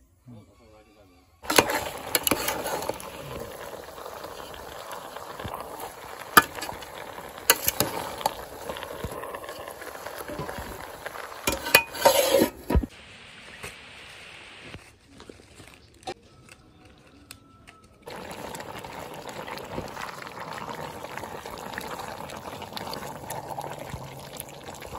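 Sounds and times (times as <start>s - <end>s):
meat sizzling in a pot: 1.4s - 14.7s, 18.1s - 24.9s
metal clatter and rubbing: 11.4s - 12.9s
metal spoon clinking on pot: 11.5s - 12.4s.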